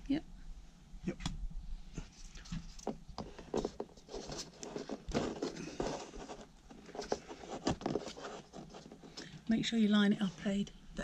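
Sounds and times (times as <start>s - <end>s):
plastic scraping against wood: 2.5s - 9.2s.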